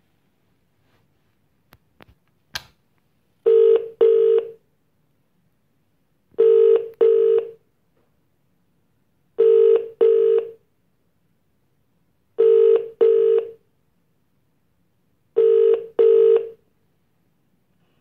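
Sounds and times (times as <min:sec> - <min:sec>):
phone ringback tone: 0:03.5 - 0:04.6, 0:06.4 - 0:07.6, 0:09.4 - 0:10.6, 0:12.4 - 0:13.6, 0:15.4 - 0:16.6.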